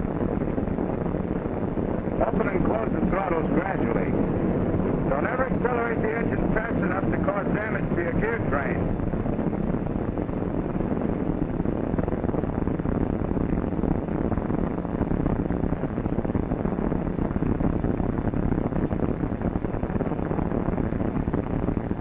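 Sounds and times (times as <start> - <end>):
film soundtrack hiss: 0.0 - 22.0
radial aircraft engines droning: 0.0 - 22.0.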